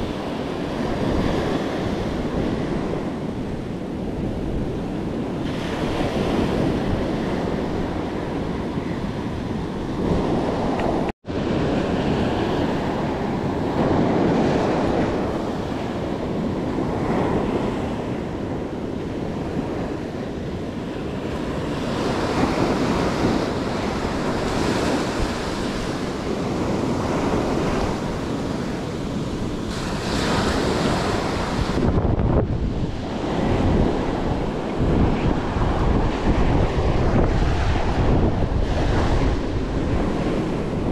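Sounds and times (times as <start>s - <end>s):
surf washing over sandy beach: 0.0s - 40.9s
wind buffeting microphone: 0.0s - 40.9s.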